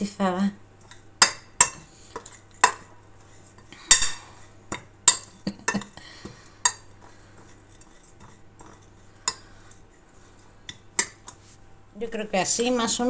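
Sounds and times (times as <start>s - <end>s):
metal spoon clinking and scraping plate: 0.8s - 6.0s, 6.6s - 11.4s.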